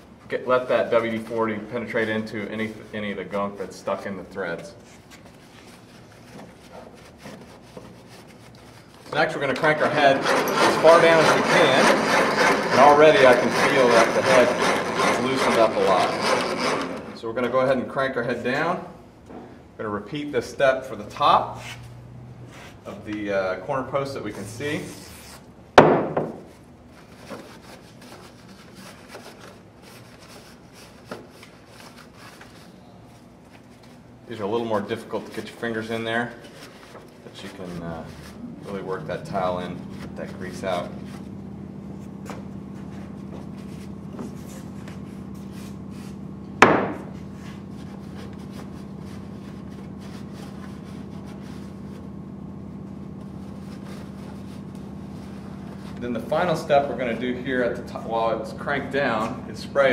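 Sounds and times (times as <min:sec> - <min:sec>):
steady low hum: 0:00.0 - 0:59.9
rag rubbing and rustling: 0:00.7 - 0:17.2, 0:26.9 - 0:41.3
rag rubbing: 0:04.8 - 0:17.5
sharp loud knock: 0:25.8 - 0:26.4, 0:46.6 - 0:47.0
sharp knock: 0:46.6 - 0:47.0.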